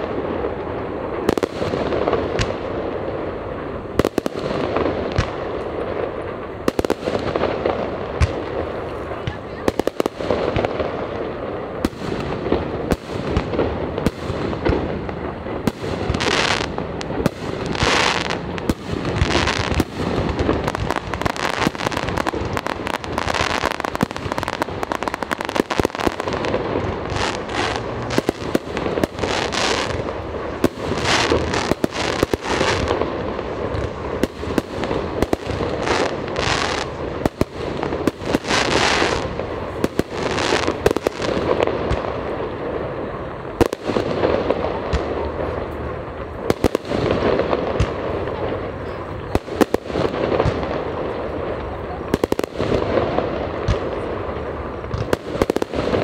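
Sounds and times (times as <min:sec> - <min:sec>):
fireworks bangs: 0:00.0 - 0:56.0
hissing crackling bursts: 0:00.0 - 0:56.0.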